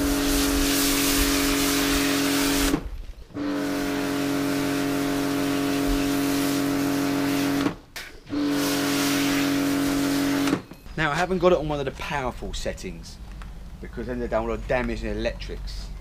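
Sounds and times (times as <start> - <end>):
foam lance spraying hiss: 0.0 - 2.8, 3.4 - 10.6
pressure washer motor hum: 0.0 - 10.7.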